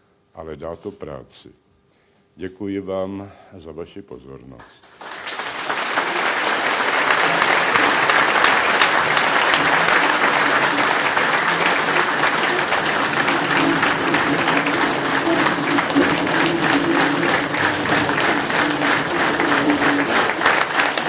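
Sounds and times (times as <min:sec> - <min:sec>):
large audience applauding: 0:04.8 - 0:21.0.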